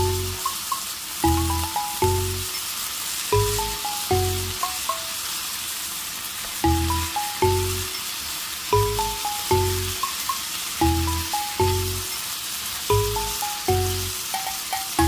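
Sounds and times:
plucked music with bass beats: 0:00.0 - 0:02.5, 0:03.4 - 0:05.1, 0:06.6 - 0:07.9, 0:08.7 - 0:12.1, 0:12.9 - 0:15.0
vegetables sizzling in a pan: 0:00.0 - 0:15.0.

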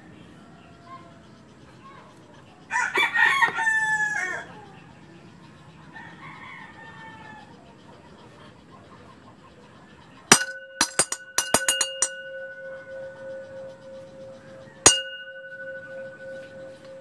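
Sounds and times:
small bell ringing: 0:10.3 - 0:17.0.

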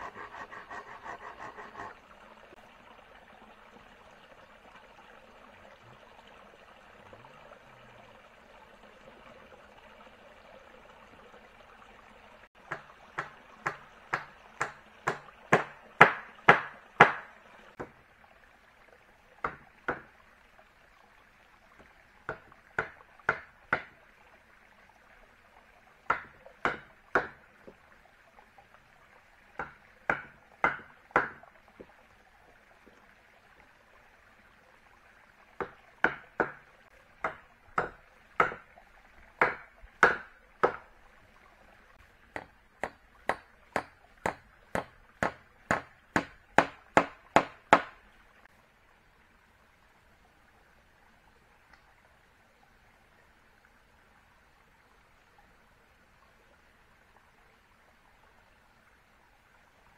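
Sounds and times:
faint steady hiss: 0:00.0 - 0:59.9
tool striking wood: 0:12.7 - 0:17.9, 0:39.4 - 0:40.8, 0:42.4 - 0:47.9.

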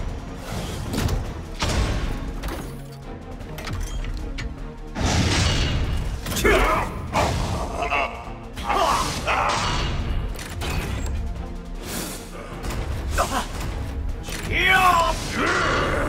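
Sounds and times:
background music: 0:00.0 - 0:16.0
character yelling: 0:14.5 - 0:16.0.

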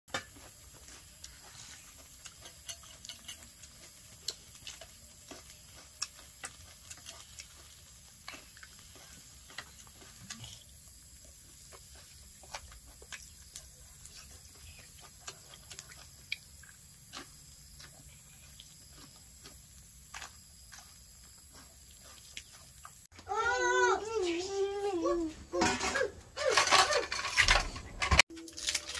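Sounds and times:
steady high-pitched hiss: 0:00.1 - 0:26.3
chewing clicks and smacks: 0:01.2 - 0:10.6, 0:12.4 - 0:20.8, 0:21.5 - 0:23.0
spoons and plates handled: 0:01.5 - 0:05.8, 0:25.6 - 0:28.9.

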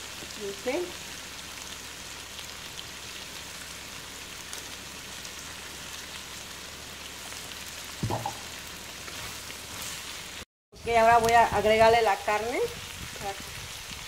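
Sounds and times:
vegetables sizzling in a wok: 0:00.0 - 0:14.0.

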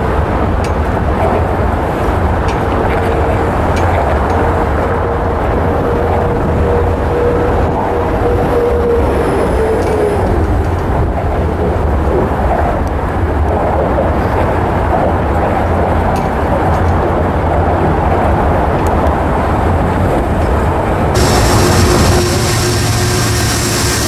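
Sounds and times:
train rumbling past: 0:00.0 - 0:24.0
wheel and track hiss: 0:21.2 - 0:24.0.

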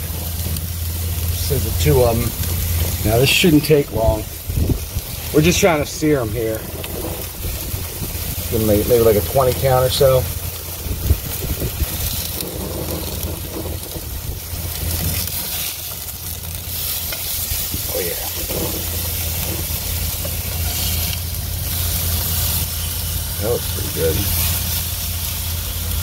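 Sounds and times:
fish sizzling in frying pan: 0:00.0 - 0:26.0
metal spatula scraping pan: 0:18.2 - 0:22.5.

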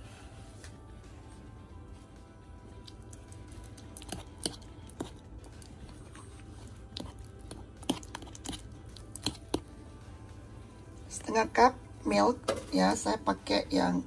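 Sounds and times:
faint background music: 0:00.0 - 0:14.0
utensils and bowls clicking: 0:07.0 - 0:09.7.

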